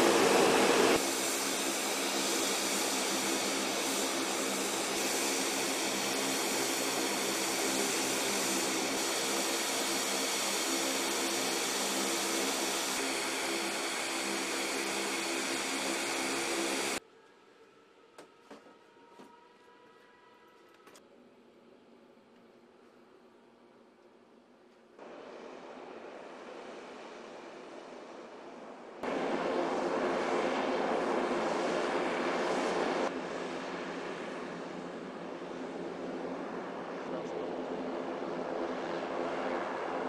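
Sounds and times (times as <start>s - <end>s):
machinery drone and whine: 0.0s - 17.0s, 25.0s - 40.0s.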